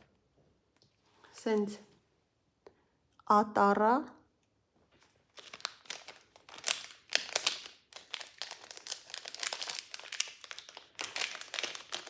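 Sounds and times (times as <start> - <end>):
plastic bags crinkling: 4.9 - 12.0.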